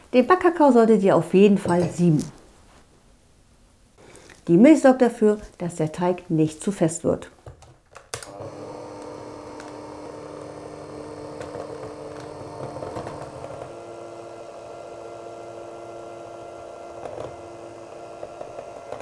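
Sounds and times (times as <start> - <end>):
electric hand mixer running: 8.3 - 19.0.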